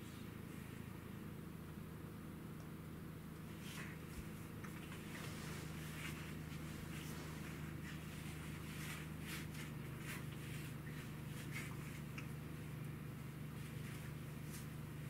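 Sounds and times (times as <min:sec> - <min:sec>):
low hum: 0:02.6 - 0:15.0
paws rustling through fur: 0:03.4 - 0:15.0.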